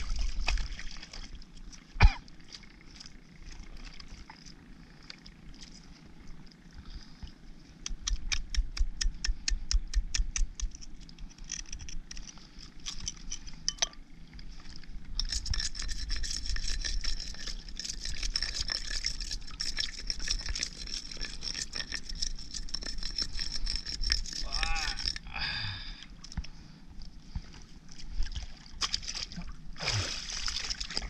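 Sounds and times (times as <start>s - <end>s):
scraping of rough shell: 15.2s - 25.3s.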